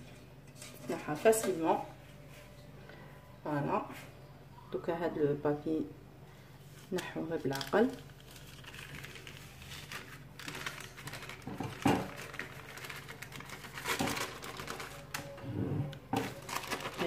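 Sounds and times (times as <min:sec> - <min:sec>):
baking paper rustling: 0:06.6 - 0:15.4, 0:16.1 - 0:17.0.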